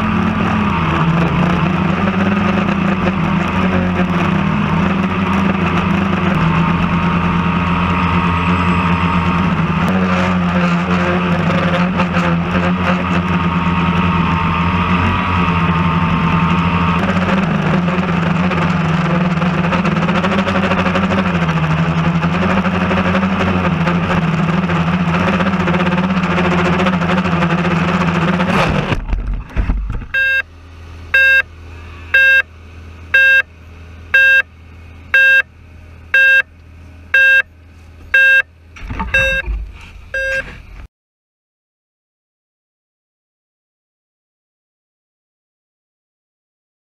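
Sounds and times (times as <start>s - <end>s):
drone motors humming: 0.0s - 40.9s
drone beeping: 30.1s - 30.5s, 31.1s - 31.5s, 32.1s - 32.5s, 33.1s - 33.5s, 34.1s - 34.5s, 35.1s - 35.5s, 36.1s - 36.5s, 37.1s - 37.5s, 38.1s - 40.6s.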